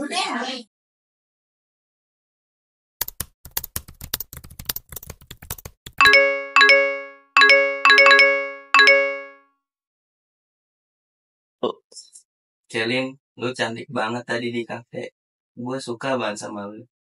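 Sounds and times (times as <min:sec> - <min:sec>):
laptop keyboard clicking: 0:03.0 - 0:06.0
notification chime dings: 0:06.0 - 0:09.4.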